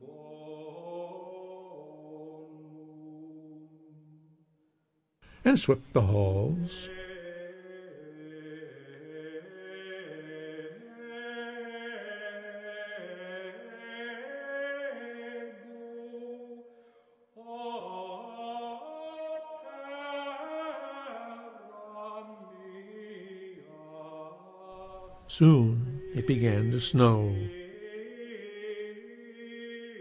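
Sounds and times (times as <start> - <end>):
male voices chanting in unison: 17.4 - 30.0.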